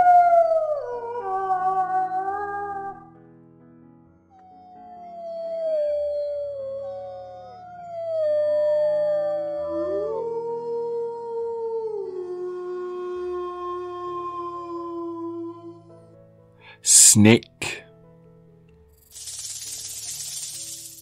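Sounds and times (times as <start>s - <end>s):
wolves howling: 4.8s - 15.9s.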